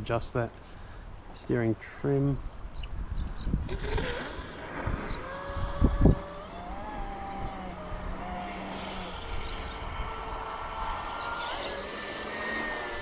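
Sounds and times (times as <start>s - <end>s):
distant rc boat motor whine: 3.7s - 13.0s.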